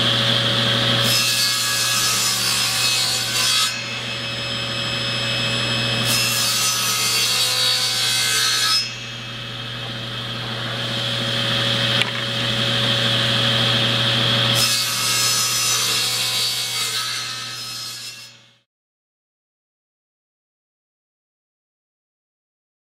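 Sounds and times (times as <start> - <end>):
table saw ripping a board: 0.8 - 18.4.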